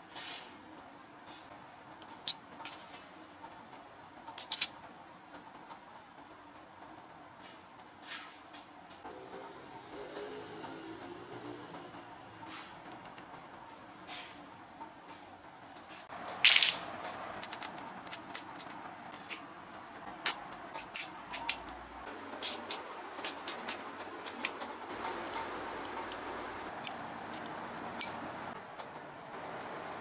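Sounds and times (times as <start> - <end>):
cutters snipping: 20.1 - 21.8, 22.4 - 26.2.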